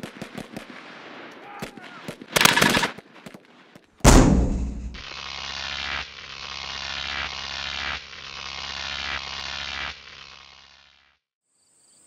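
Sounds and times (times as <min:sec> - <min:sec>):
low hum: 0:04.1 - 0:05.0
electric buzzing drone: 0:04.1 - 0:11.2.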